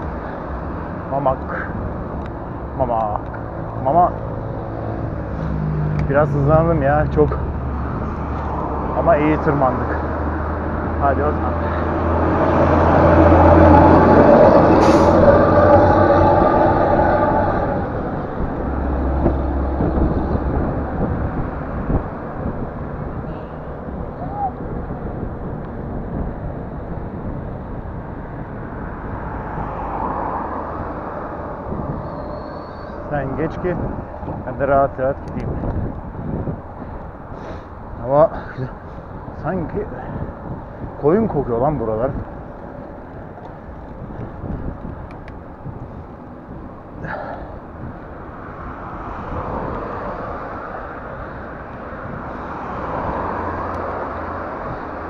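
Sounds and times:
deep engine hum: 0:00.0 - 0:34.7
wind rushing over microphone: 0:00.0 - 0:55.0
bicycle tyres on asphalt: 0:35.4 - 0:55.0.

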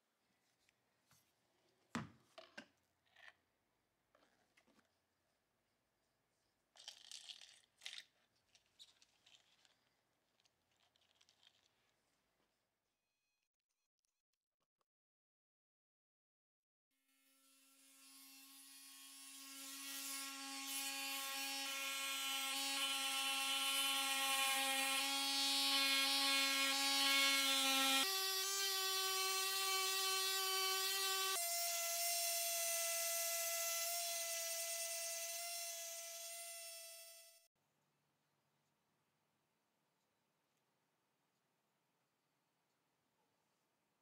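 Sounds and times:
orbital sander whining on steel: 0:18.4 - 0:37.4.

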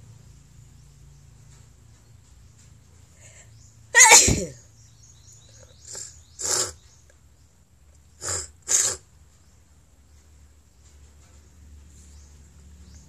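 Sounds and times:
woman sneezing: 0:04.0 - 0:04.6.

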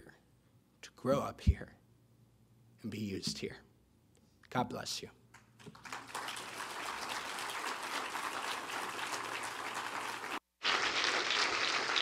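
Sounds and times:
congregation applauding: 0:05.6 - 0:12.0.

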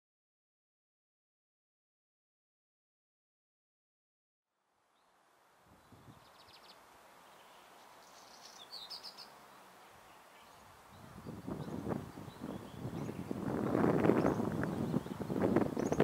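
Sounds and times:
wind rumble on microphone: 0:05.7 - 0:06.4, 0:10.9 - 0:16.0
small birds chirping: 0:05.7 - 0:16.0.

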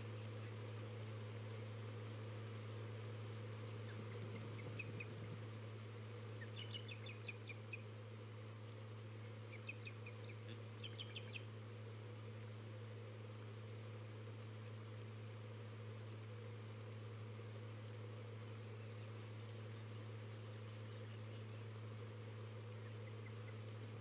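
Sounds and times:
steady low hum: 0:00.0 - 0:24.0
ospreys chirping: 0:06.4 - 0:07.8.

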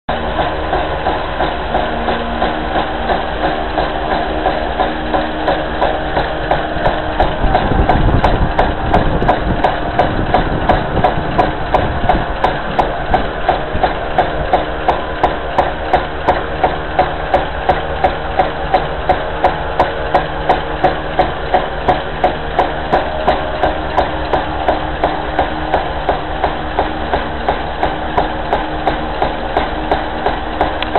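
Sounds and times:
propeller whirring: 0:00.1 - 0:30.9
whirligig parts knocking: 0:00.1 - 0:30.9
wind rumble on microphone: 0:07.0 - 0:14.5.

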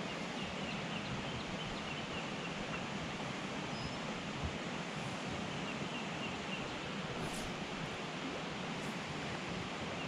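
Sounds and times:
stream water rushing: 0:00.0 - 0:10.0
faint high bird chirps: 0:03.7 - 0:04.0.

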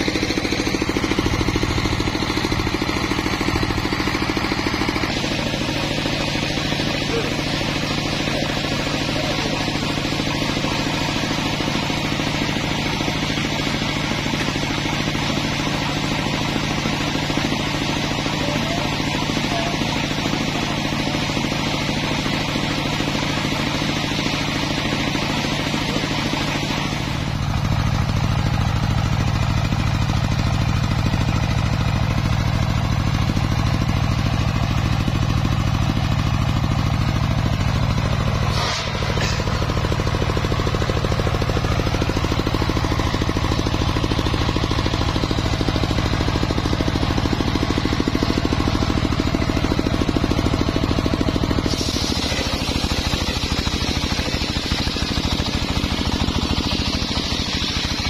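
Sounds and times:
sawmill engine running: 0:00.0 - 0:58.0
saw blade cutting log: 0:38.4 - 0:40.4, 0:51.6 - 0:58.0.

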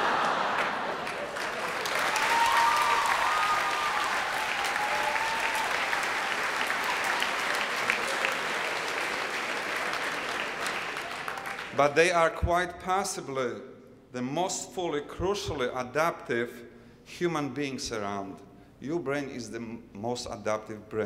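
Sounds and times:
audience applauding: 0:00.0 - 0:11.8.

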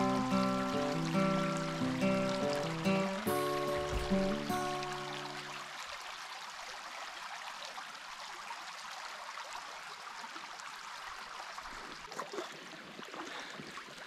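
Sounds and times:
creek water trickling: 0:00.0 - 0:14.0
faint knocks: 0:03.6 - 0:04.6.

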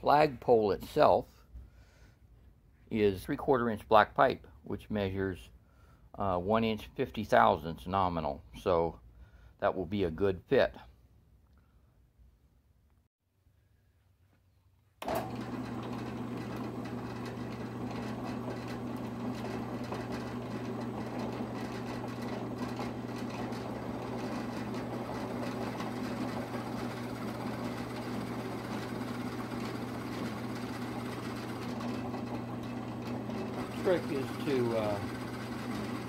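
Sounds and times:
drill bit boring into wood: 0:15.0 - 0:36.0
drill press motor humming: 0:15.0 - 0:36.0.

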